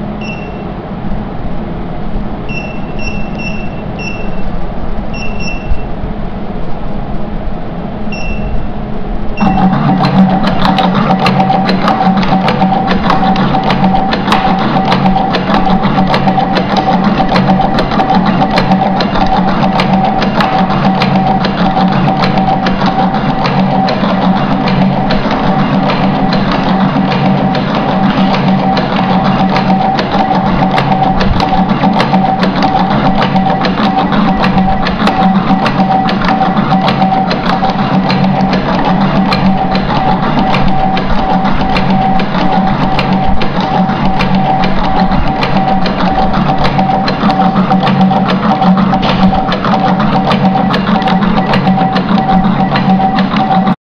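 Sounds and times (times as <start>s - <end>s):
machine motor hum and whine: 0.0s - 53.8s
fast continuous mechanical clicking: 2.4s - 6.0s, 8.1s - 53.8s.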